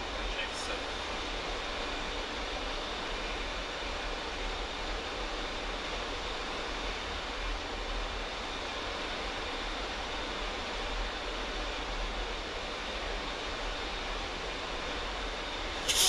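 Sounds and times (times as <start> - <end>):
air and engines rushing: 12.4 - 16.0.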